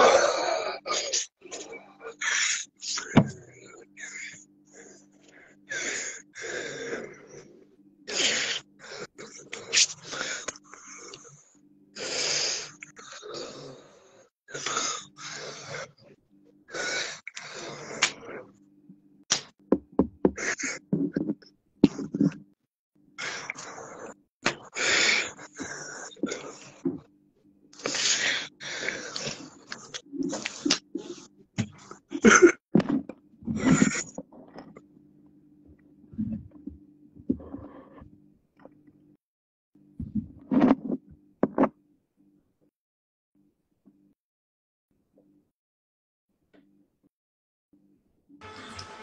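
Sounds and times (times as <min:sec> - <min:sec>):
steady low hum: 0:01.1 - 0:39.2.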